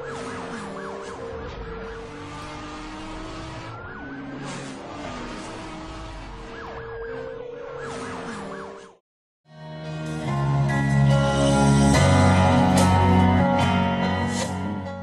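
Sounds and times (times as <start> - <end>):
car noise: 0.0 - 8.9
siren wailing and yelping: 0.0 - 9.0.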